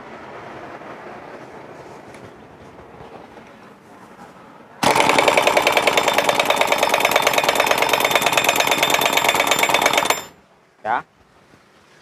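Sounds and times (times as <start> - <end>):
pneumatic impact wrench rattling: 4.8 - 10.4.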